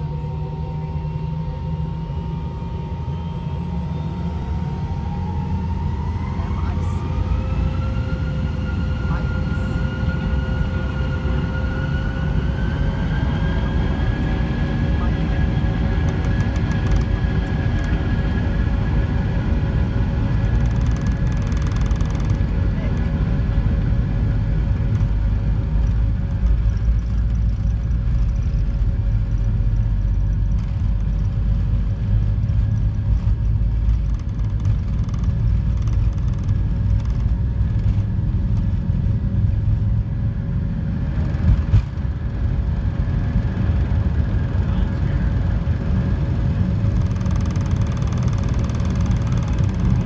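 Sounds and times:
jet engines rumbling and whining: 0.0 - 50.0
wheels rumbling over runway: 0.0 - 50.0.

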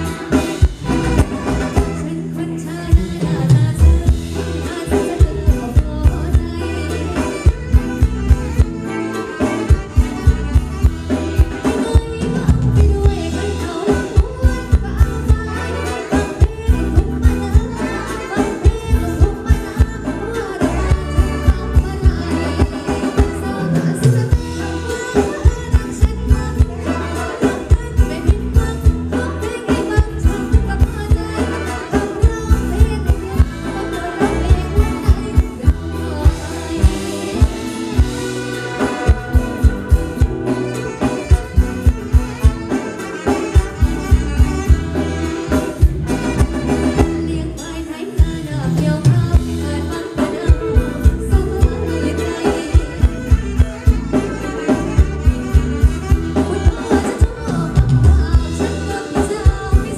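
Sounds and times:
steady drum beat: 0.0 - 2.1, 2.9 - 47.3, 49.0 - 59.9
bass guitar: 0.0 - 59.9
electric guitar: 0.0 - 59.9
woman singing: 0.0 - 59.9.

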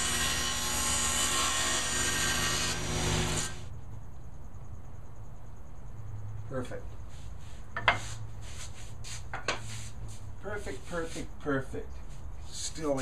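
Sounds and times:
table saw cutting board: 0.0 - 3.7.

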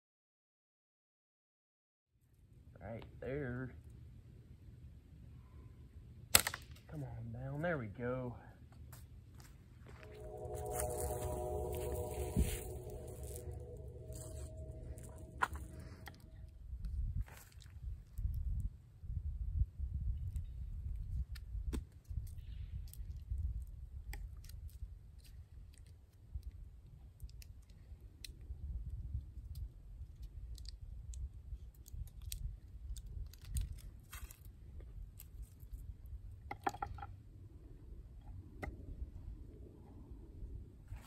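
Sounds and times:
low rumble: 9.8 - 17.2.

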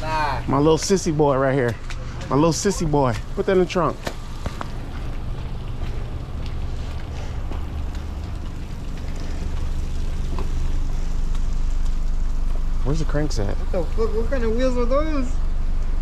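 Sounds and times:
rain on wet pavement: 0.0 - 16.0
wind rumbling on microphone: 4.2 - 11.8.

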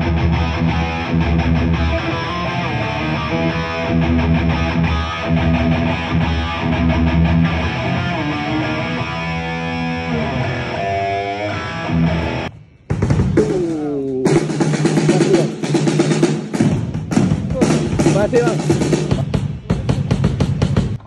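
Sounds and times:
bass guitar: 0.0 - 15.7
heavy metal electric guitar: 0.0 - 16.2.

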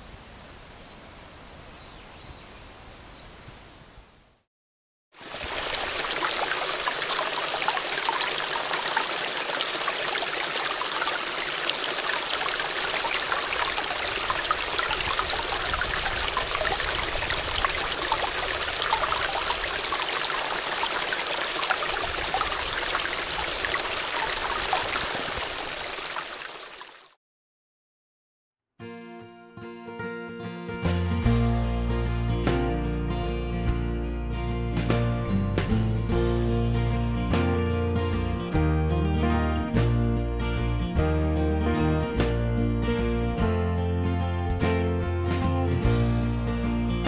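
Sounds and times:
water splashing into a pool: 5.2 - 27.2.

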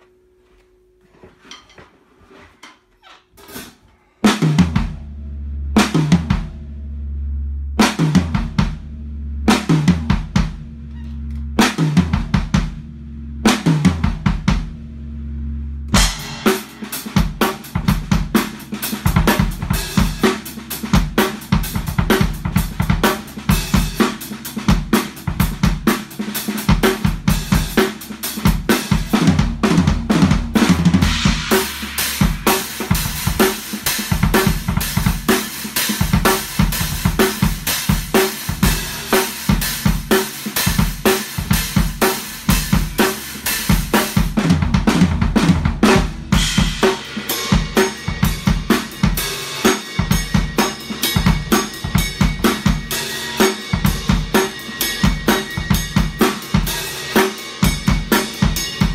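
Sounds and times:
drum kit played with sticks: 1.4 - 58.9
bass drum ringing: 4.5 - 16.5, 40.9 - 56.2
cymbals: 16.0 - 25.2, 30.6 - 44.4, 45.9 - 58.9.

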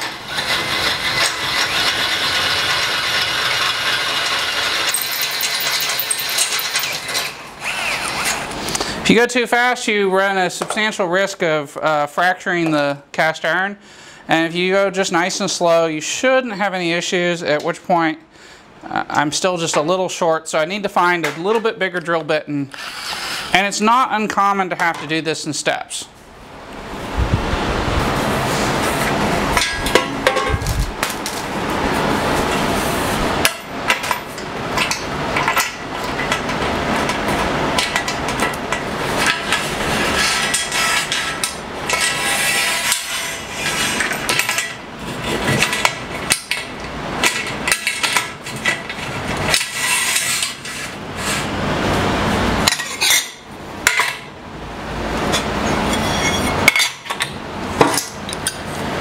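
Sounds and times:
metal clanking and knocking: 29.5 - 31.4.

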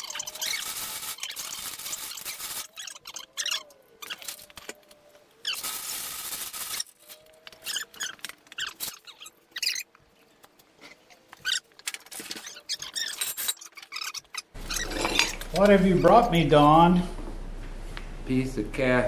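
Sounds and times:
high squeaks and creaks: 0.0 - 16.4
heavy metal scraping: 14.6 - 15.6.

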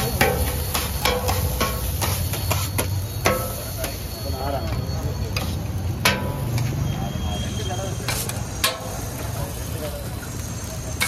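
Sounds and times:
steel utensils knocking: 0.0 - 4.0, 4.6 - 6.8, 8.0 - 9.0.

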